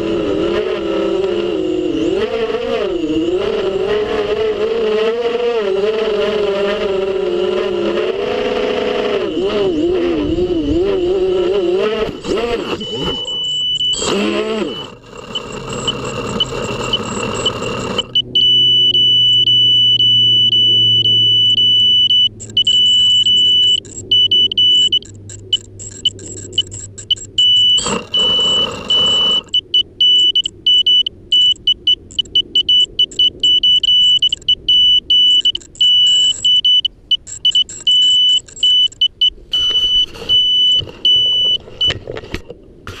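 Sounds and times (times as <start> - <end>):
drone propellers whirring: 0.0 - 42.0
high-pitched buzzer beeping: 7.6 - 42.0.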